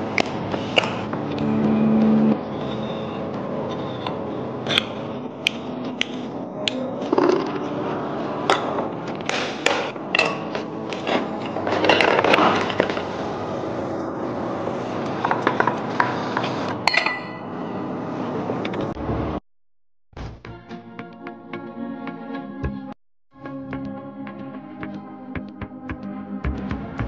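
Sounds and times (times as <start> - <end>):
clicks knocks and scrapes of parts: 15.0 - 16.8.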